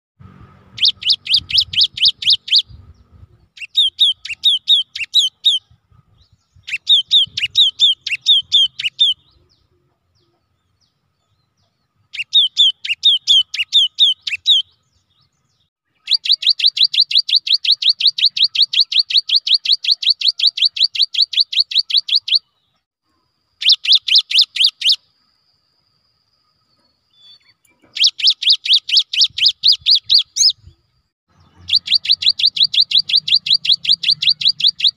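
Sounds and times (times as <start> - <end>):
bird singing whistled notes: 0.7 - 22.9, 23.6 - 34.9.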